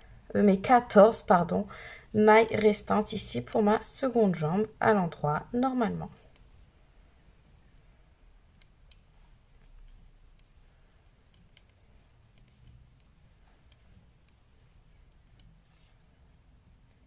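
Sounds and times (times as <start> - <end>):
low room hum: 0.0 - 17.0
knitting needles clicking: 6.1 - 6.6, 8.4 - 17.0.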